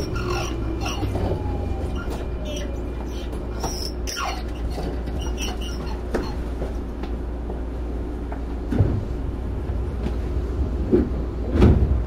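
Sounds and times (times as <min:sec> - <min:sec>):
short high squeaks: 0:00.0 - 0:06.4
train low rumble and hum: 0:00.0 - 0:12.0.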